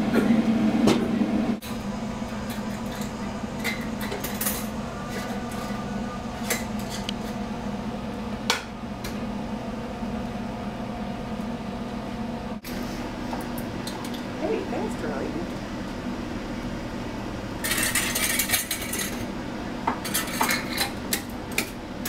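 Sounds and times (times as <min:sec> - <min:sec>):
steady hum: 0:00.0 - 0:22.0.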